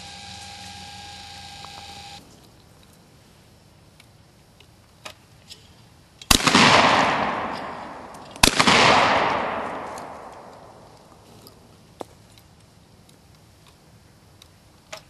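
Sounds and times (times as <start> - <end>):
shotgun shots with echo: 6.3 - 11.0.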